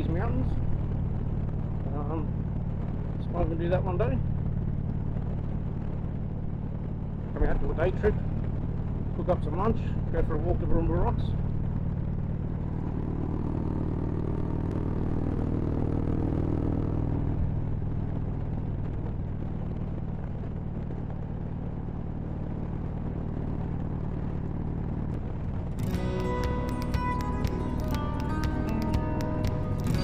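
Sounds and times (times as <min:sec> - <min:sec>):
motorcycle engine cruising: 0:00.0 - 0:30.0
background music: 0:25.8 - 0:30.0.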